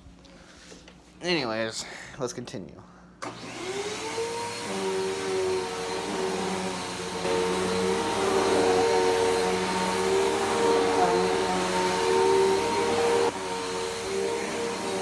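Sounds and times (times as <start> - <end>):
vacuum cleaner motor whining: 3.2 - 15.0.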